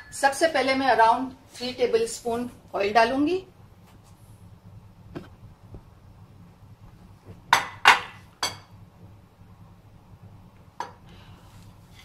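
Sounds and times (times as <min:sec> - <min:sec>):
kitchenware clinking and knocking: 0:07.5 - 0:08.7.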